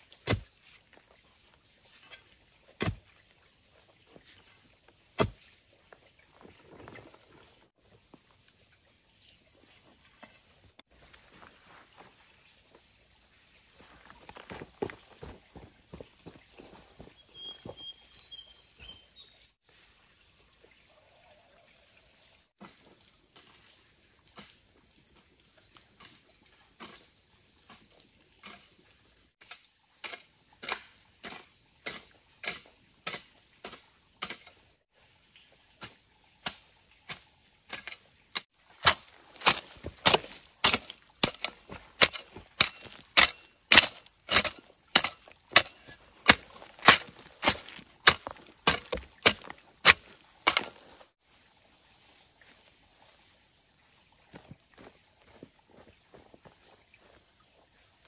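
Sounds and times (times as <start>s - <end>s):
blade chopping strokes: 5.2s - 5.5s, 36.5s - 51.0s.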